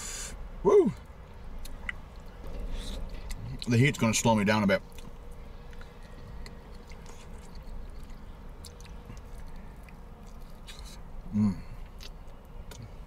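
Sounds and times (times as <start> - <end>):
low steady hum: 0.0 - 13.0
person chewing: 4.9 - 13.0.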